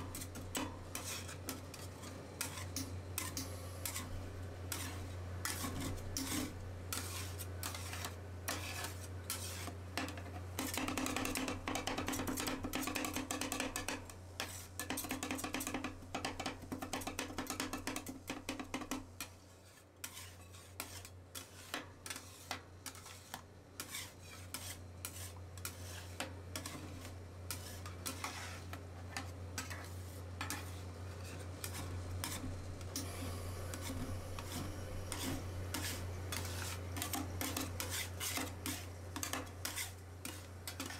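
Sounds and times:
metal spatulas clinking and scraping: 0:00.0 - 0:04.1, 0:19.6 - 0:33.1, 0:33.7 - 0:40.9
steady low hum: 0:00.0 - 0:09.3, 0:24.8 - 0:40.9.

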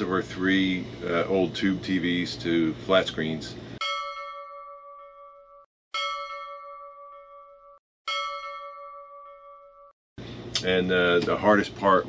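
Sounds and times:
bell-like chime: 0:03.8 - 0:10.0.

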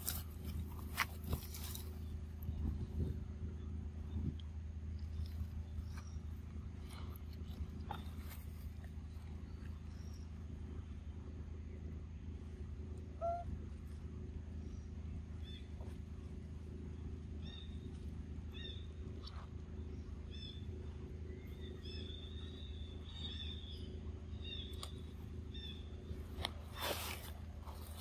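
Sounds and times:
steady low hum: 0:00.0 - 0:28.0
lower bird call: 0:13.1 - 0:13.7, 0:16.9 - 0:26.2
high bird chirps: 0:13.2 - 0:13.5.

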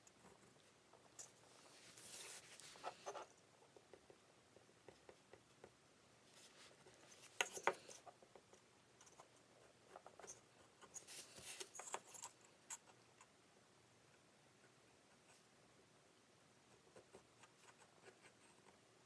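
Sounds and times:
pencil scratching on wood: 0:16.7 - 0:18.8.

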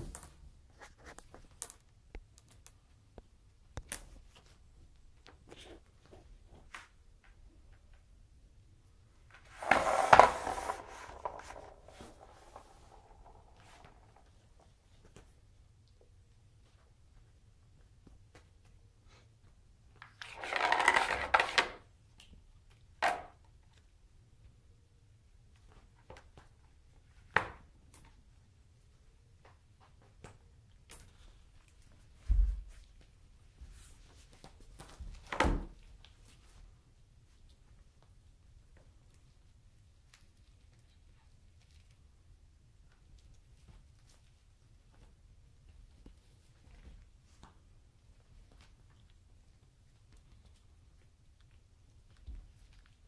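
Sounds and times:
kitten scratching plastic toy: 0:09.5 - 0:14.2.

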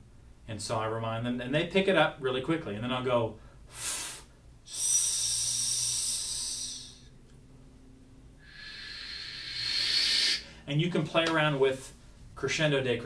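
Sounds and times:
man hissing sss: 0:03.7 - 0:07.1, 0:08.4 - 0:10.7
man saying shh: 0:03.7 - 0:07.1, 0:08.4 - 0:10.7.

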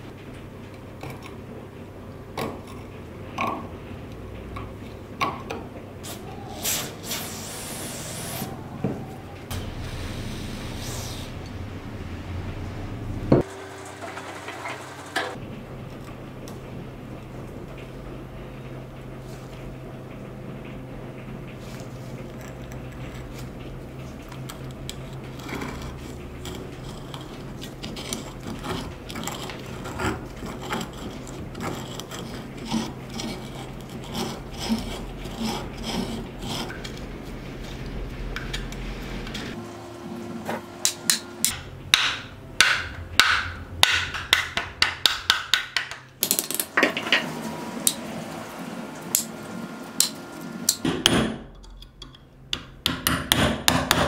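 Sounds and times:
steady low hum: 0:00.0 - 0:13.5, 0:15.3 - 0:46.2
hammer tapping on steel punch: 0:52.0 - 0:54.0.

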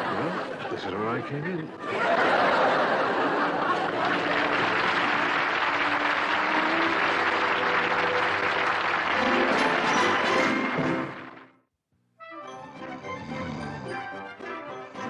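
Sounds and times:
studio audience laughter and applause: 0:00.0 - 0:11.3
music with held notes: 0:03.8 - 0:11.5, 0:12.2 - 0:15.0.

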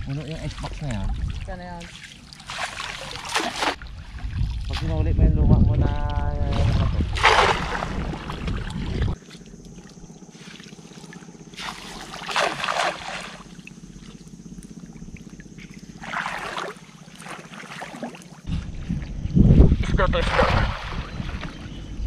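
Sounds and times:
water sloshing: 0:00.0 - 0:04.8, 0:06.4 - 0:19.1
cast net splashing on water: 0:01.9 - 0:03.8, 0:07.1 - 0:08.7, 0:11.5 - 0:13.5, 0:16.0 - 0:18.4.

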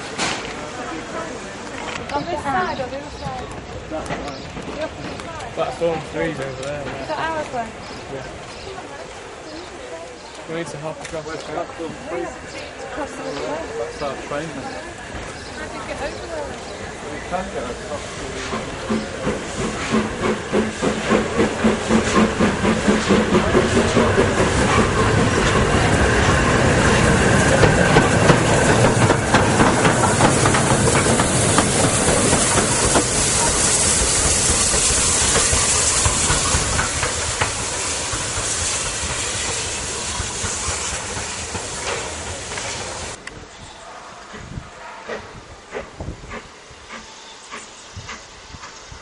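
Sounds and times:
steam locomotive chuffing: 0:00.0 - 0:43.3, 0:44.4 - 0:49.0
steam hissing: 0:11.3 - 0:43.2.

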